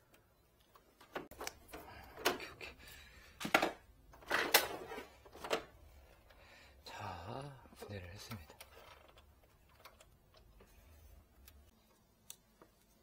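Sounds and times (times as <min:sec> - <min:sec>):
plastic clacks and rattles: 0:03.4 - 0:05.7, 0:08.3 - 0:10.6.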